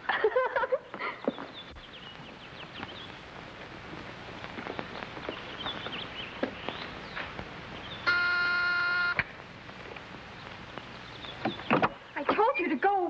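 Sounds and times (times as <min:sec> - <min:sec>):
footsteps on a porch: 0:00.7 - 0:07.8
faint bird chirps: 0:01.1 - 0:03.3, 0:04.6 - 0:09.1, 0:10.3 - 0:12.8
doorbell buzzer: 0:08.0 - 0:09.3.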